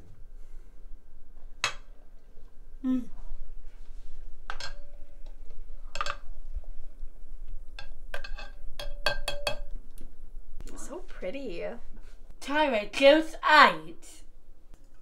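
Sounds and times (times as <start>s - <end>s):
metal ladle clinking on glass: 7.8s - 9.7s
glass bowl ringing: 8.4s - 9.7s.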